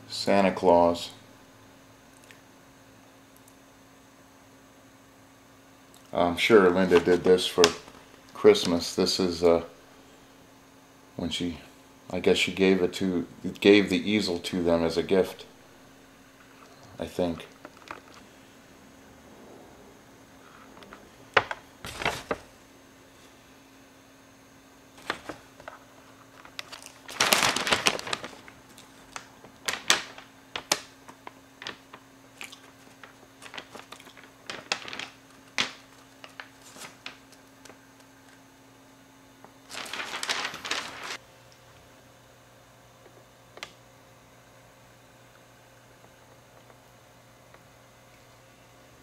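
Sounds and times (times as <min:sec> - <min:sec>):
faint steady hum: 0:00.0 - 0:49.0
paper rustling: 0:06.7 - 0:08.7, 0:20.4 - 0:22.5, 0:24.9 - 0:37.8, 0:39.6 - 0:41.2.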